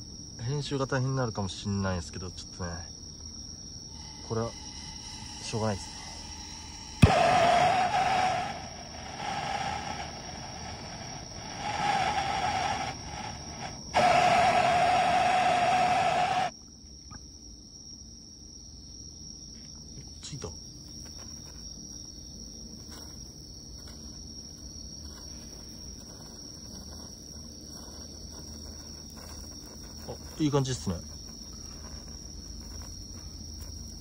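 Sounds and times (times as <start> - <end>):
crickets chirping: 0.0 - 34.0
firework hissing: 3.9 - 16.5.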